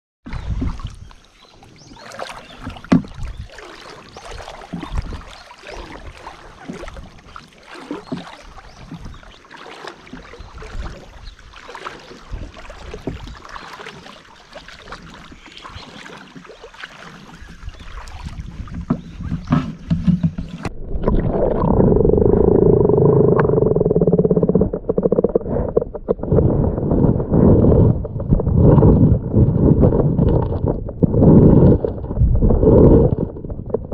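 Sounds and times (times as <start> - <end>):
river water splashing: 0.3 - 26.6
muffled underwater rumble: 17.3 - 33.9.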